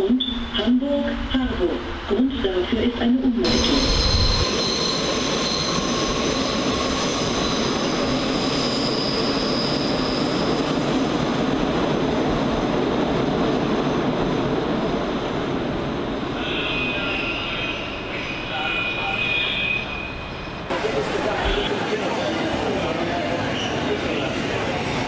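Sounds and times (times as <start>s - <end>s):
high-pitched squealing tones: 3.5s - 7.7s.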